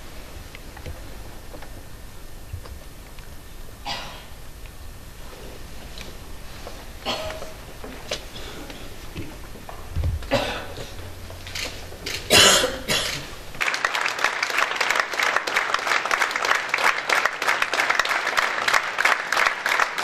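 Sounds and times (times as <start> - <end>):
audience applauding: 13.6 - 20.0.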